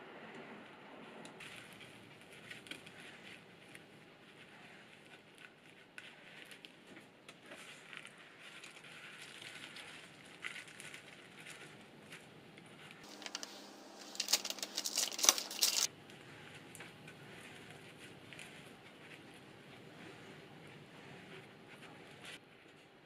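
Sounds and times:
croissant and paper crackling: 0:01.4 - 0:22.7.

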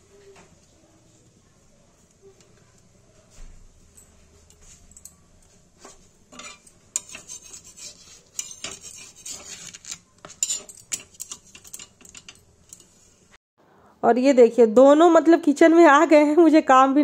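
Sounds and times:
metal tongs clicking and scraping griddle: 0:06.3 - 0:13.2.

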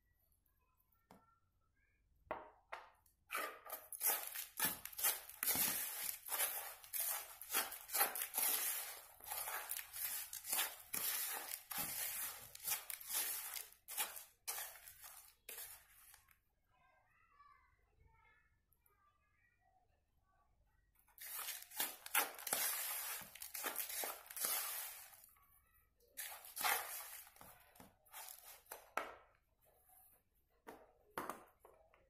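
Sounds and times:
spoon scraping plastic bowl: 0:03.3 - 0:16.2, 0:21.2 - 0:25.3, 0:26.2 - 0:28.9
crumbs rustling: 0:03.9 - 0:16.2, 0:21.2 - 0:25.3, 0:26.2 - 0:28.7.

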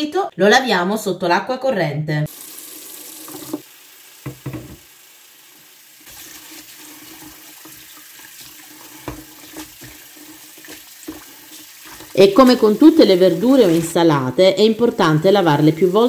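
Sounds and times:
tap water running into bowl: 0:02.3 - 0:05.0, 0:06.0 - 0:14.0.

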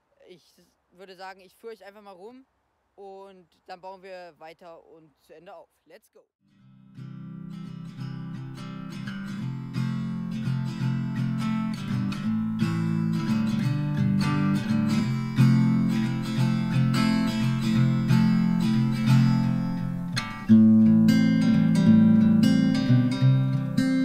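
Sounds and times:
acoustic guitar tune: 0:06.4 - 0:24.0.

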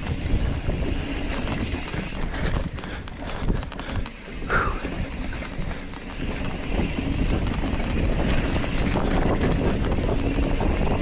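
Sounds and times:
bike clicks and rattles: 0:00.0 - 0:11.0
wind buffeting microphone: 0:00.0 - 0:11.0.

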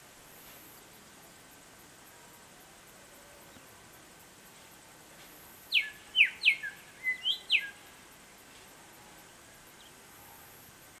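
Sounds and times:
songbird whistling: 0:05.7 - 0:07.8.

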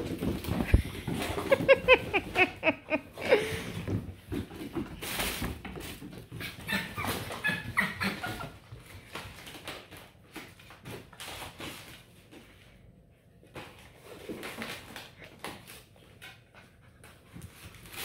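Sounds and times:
puppies playing clicks and scuffles: 0:00.0 - 0:18.0
puppy whimpering: 0:06.4 - 0:08.6.

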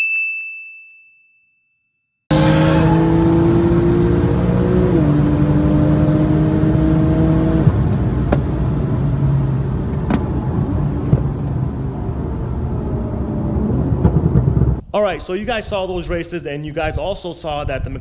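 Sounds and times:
car engine accelerating hard: 0:02.3 - 0:14.8
wind and road noise: 0:02.3 - 0:18.0.

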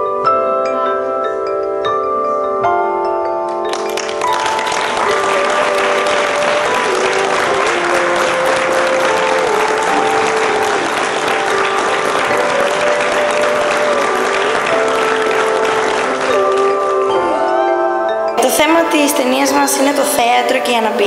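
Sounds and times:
slow melody music: 0:00.0 - 0:21.0
audience applauding: 0:03.5 - 0:17.4.

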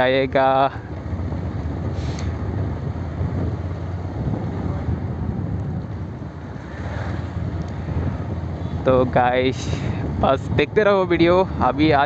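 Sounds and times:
motorcycle engine running: 0:00.0 - 0:12.0
wind rumbling over microphone: 0:00.0 - 0:12.0.

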